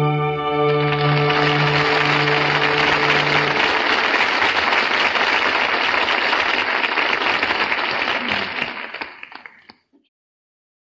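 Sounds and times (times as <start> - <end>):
held music chord: 0.0 - 4.3
audience applauding: 0.6 - 9.9.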